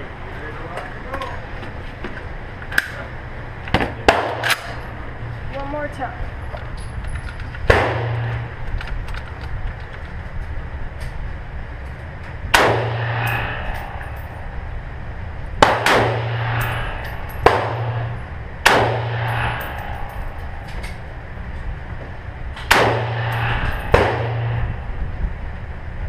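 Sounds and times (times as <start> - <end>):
rifle shots with echo: 4.0 - 4.8, 7.7 - 8.5, 12.5 - 14.0, 15.6 - 19.8, 22.7 - 24.8.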